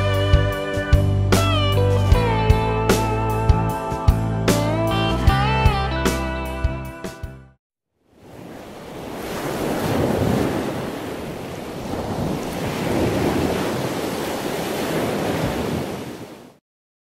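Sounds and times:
ocean waves breaking: 0:08.1 - 0:16.6.

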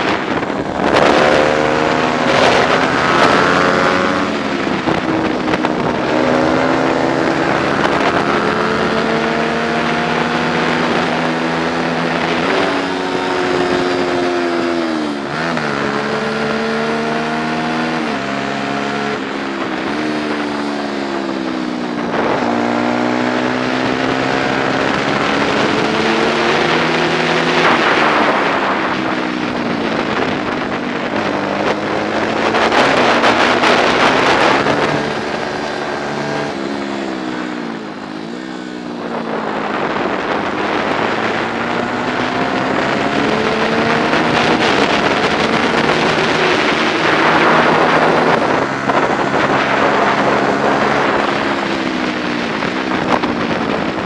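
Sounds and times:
racing motorcycle engine at high revs: 0:00.0 - 0:54.0.

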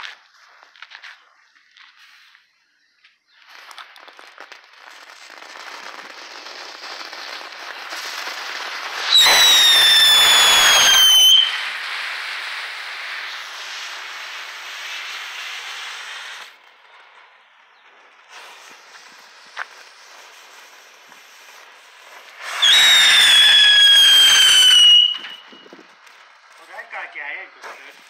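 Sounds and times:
firework fizzing hiss: 0:03.3 - 0:28.0
loud firework whistle: 0:06.0 - 0:16.6, 0:18.3 - 0:27.0.

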